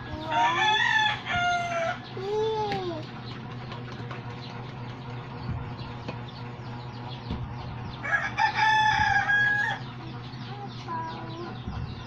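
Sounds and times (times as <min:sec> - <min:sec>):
rooster crowing: 0:00.2 - 0:02.1, 0:08.0 - 0:09.9.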